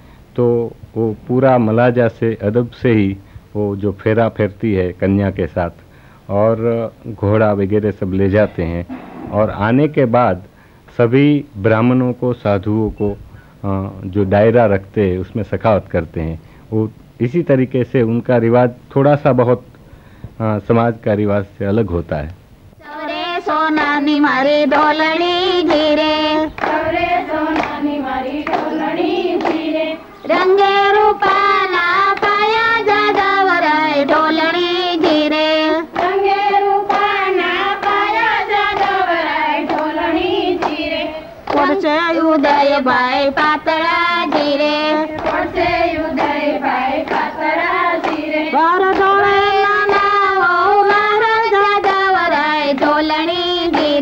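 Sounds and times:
women singing: 0:22.8 - 0:54.0.

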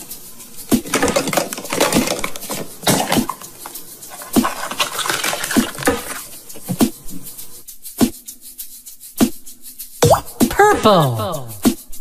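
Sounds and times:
plastic egg shells clicking and scraping: 0:00.6 - 0:07.0.

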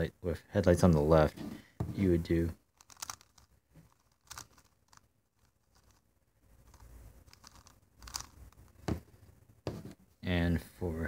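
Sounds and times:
plastic puzzle clicks and scrapes: 0:02.7 - 0:08.8.

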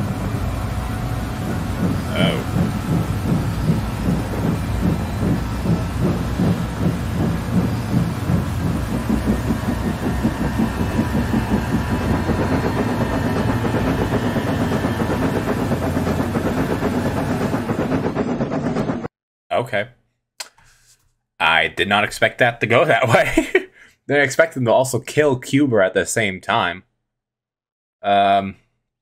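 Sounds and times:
rail clatter: 0:00.0 - 0:19.1
steam locomotive chuffing: 0:00.0 - 0:19.1.

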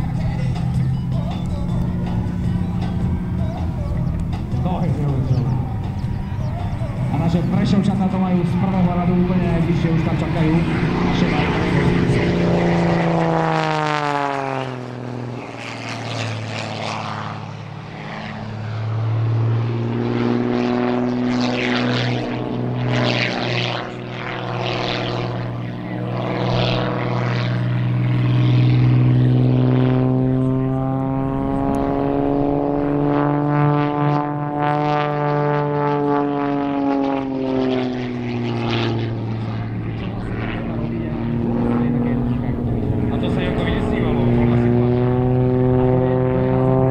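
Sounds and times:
propeller plane engine: 0:00.0 - 0:46.9.

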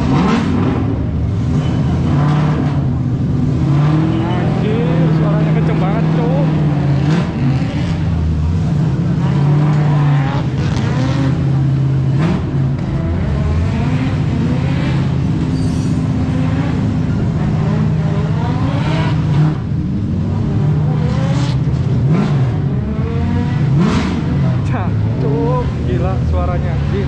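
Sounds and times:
car engine idling and revving: 0:00.0 - 0:27.0
people talking: 0:04.2 - 0:06.5, 0:24.5 - 0:27.0.

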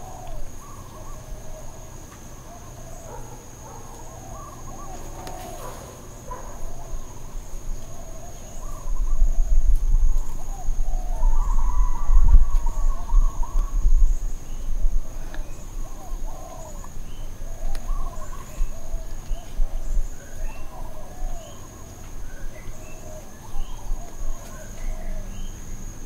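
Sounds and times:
dogs howling and whining: 0:02.8 - 0:07.2
wind rumble on microphone: 0:06.4 - 0:21.6.

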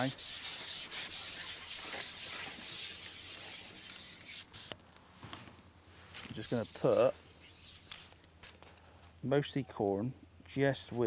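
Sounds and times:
fishing pole rubbing through hands: 0:06.4 - 0:08.2.

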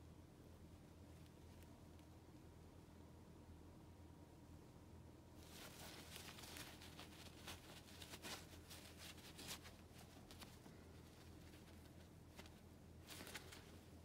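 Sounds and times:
gloved hands rustling: 0:05.4 - 0:14.0.

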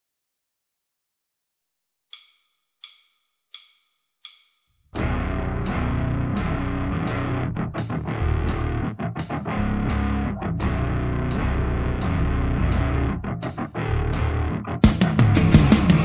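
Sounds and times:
drumstick count-in: 0:02.2 - 0:16.0
heavy rock band playing: 0:05.0 - 0:16.0.

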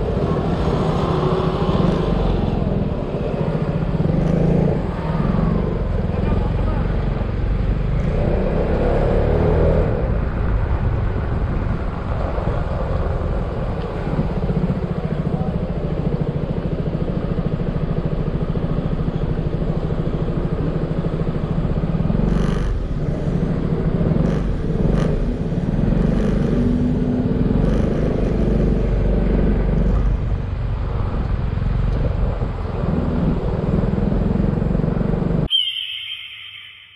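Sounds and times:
road and wind noise: 0:00.0 - 0:36.9
scooter engine running: 0:12.6 - 0:35.5.

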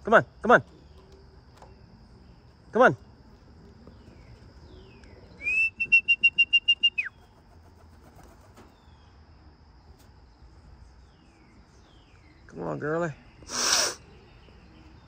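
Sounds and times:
faint insect drone: 0:00.0 - 0:15.0
trilled human whistle: 0:05.4 - 0:07.1.

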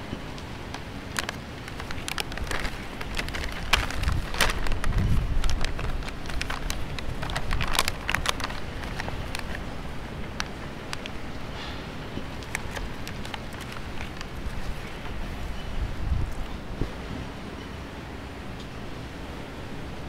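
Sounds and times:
snack pouch crinkling open: 0:01.1 - 0:09.7, 0:12.2 - 0:14.9.

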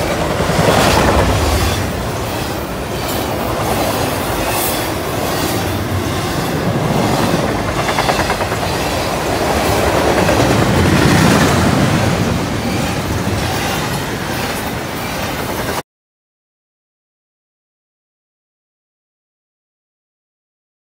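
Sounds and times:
freight train rumbling past: 0:00.0 - 0:15.8.

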